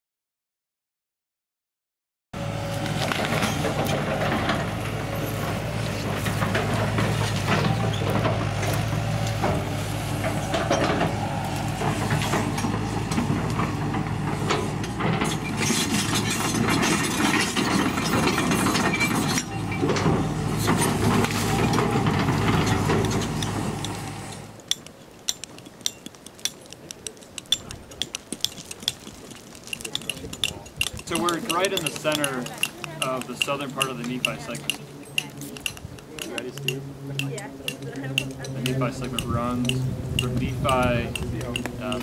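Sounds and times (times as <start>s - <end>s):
excavator diesel engine running: 2.4s - 25.4s, 29.8s - 42.0s
metal clanking: 11.8s - 42.0s
hand tools clinking on rocky soil: 20.6s - 42.0s.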